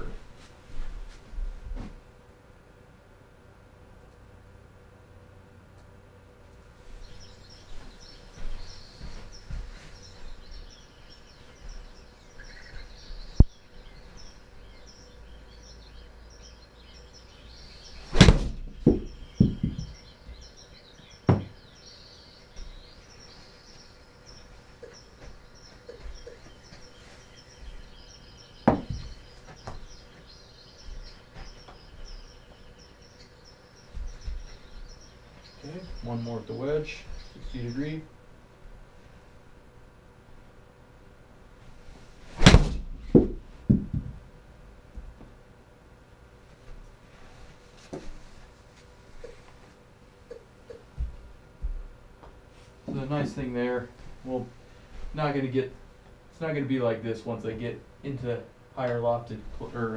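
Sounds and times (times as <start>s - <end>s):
ball thudding on screen: 18.1s - 19.9s, 28.7s - 29.1s, 42.4s - 44.2s
sharp knocks: 18.1s - 20.0s, 21.3s - 21.6s, 28.6s - 29.8s, 42.4s - 44.2s.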